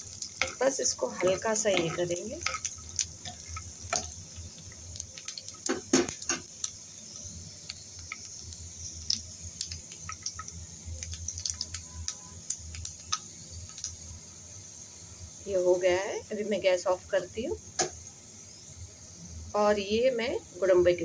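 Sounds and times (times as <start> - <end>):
spoon strokes in a pan: 0.0 - 10.5
nuts and spices sizzling in ghee: 0.0 - 21.0.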